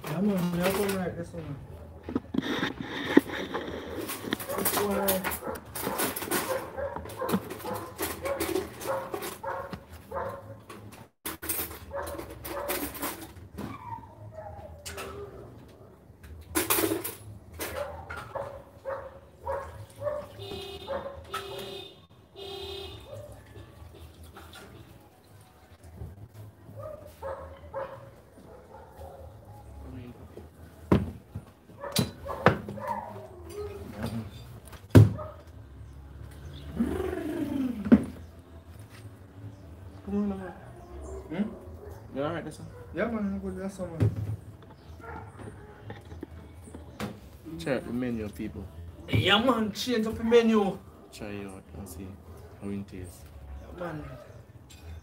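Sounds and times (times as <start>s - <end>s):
dog whining: 13.6s - 15.4s
sharp knocks and thuds: 30.9s - 33.0s, 34.9s - 35.3s.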